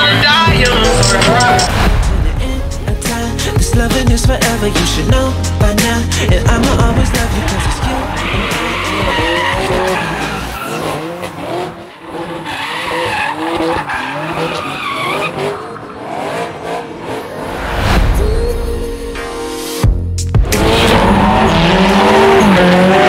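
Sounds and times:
car engine revving hard: 0:06.1 - 0:17.8, 0:20.4 - 0:23.0
tyres squealing: 0:07.1 - 0:11.4.

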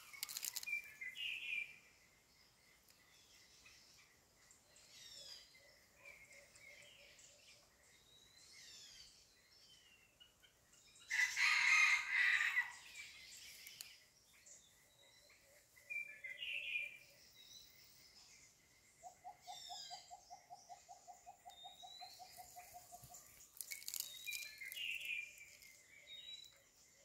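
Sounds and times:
small birds chirping: 0:00.0 - 0:11.6, 0:12.4 - 0:27.0
rooster crowing: 0:11.1 - 0:12.8.

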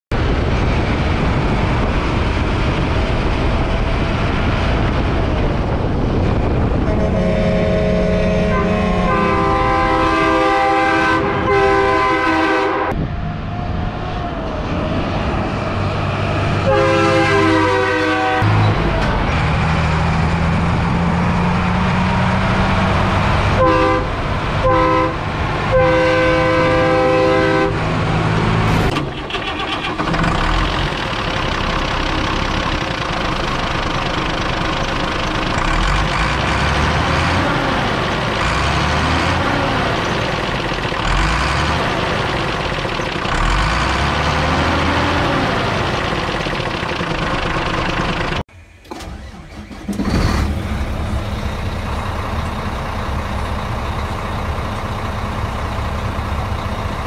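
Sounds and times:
truck engine running: 0:00.1 - 0:57.0
truck air horn blasts: 0:06.7 - 0:13.0, 0:16.6 - 0:18.7, 0:23.5 - 0:27.9.

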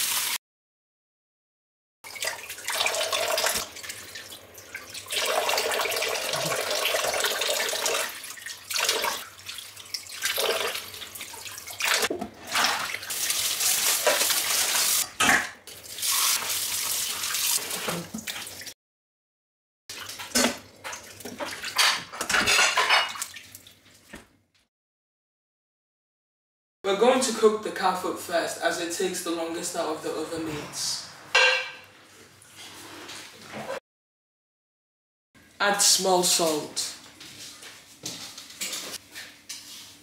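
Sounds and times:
meat rubbed under running water: 0:12.8 - 0:15.0.

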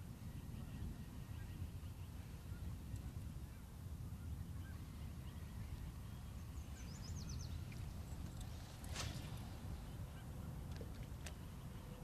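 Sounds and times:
wind and open water rumble: 0:00.0 - 0:12.0.

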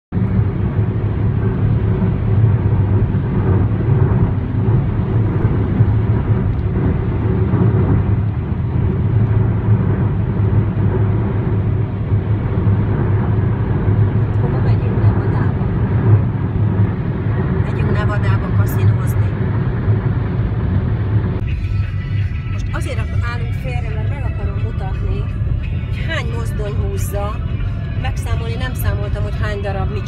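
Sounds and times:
car tyres and engine rumble: 0:00.1 - 0:30.0.

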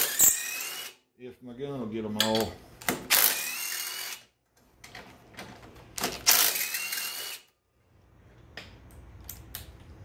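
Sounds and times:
clicks of tool and bolt: 0:02.2 - 0:03.0.

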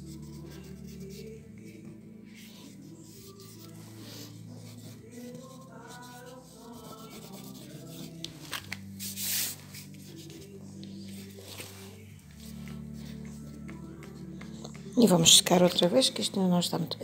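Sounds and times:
hand rubbing on paper: 0:00.0 - 0:14.9.

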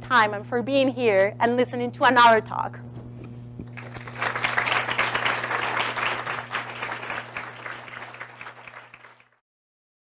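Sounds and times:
audience applauding: 0:03.8 - 0:09.4.

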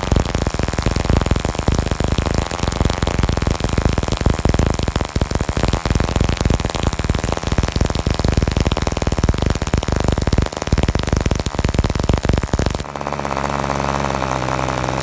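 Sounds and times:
model engine running: 0:00.0 - 0:15.0.

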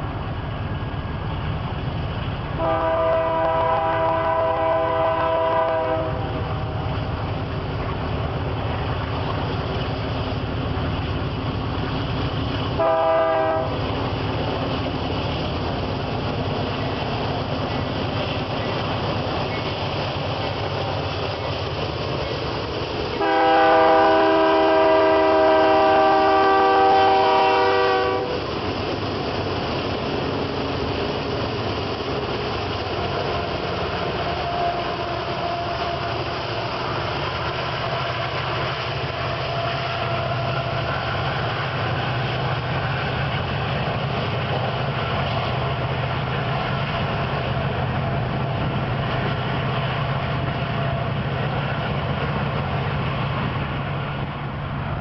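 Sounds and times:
freight cars rolling on rails: 0:00.0 - 0:55.0
locomotive engine drone: 0:00.0 - 0:55.0
locomotive air horn: 0:02.6 - 0:06.3, 0:12.8 - 0:13.8, 0:23.2 - 0:28.4, 0:34.2 - 0:36.3.

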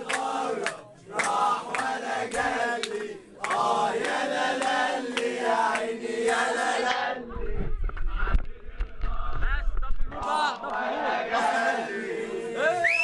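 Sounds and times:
rhythmic hand claps: 0:00.0 - 0:07.1, 0:10.1 - 0:11.8
group singing in unison: 0:00.0 - 0:13.0.

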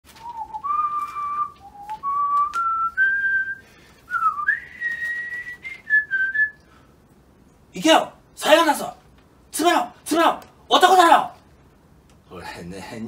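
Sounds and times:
man whistling a tune: 0:00.2 - 0:06.7.

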